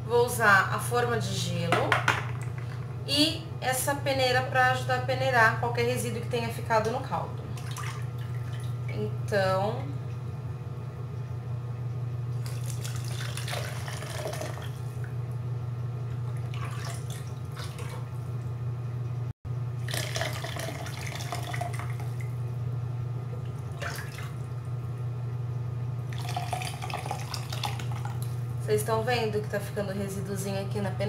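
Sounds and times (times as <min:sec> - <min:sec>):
steady low hum: 0:00.0 - 0:31.0
liquid splashing and trickling: 0:07.6 - 0:08.9, 0:12.4 - 0:15.1, 0:16.2 - 0:18.4, 0:19.8 - 0:22.4, 0:23.4 - 0:24.6, 0:26.1 - 0:28.4.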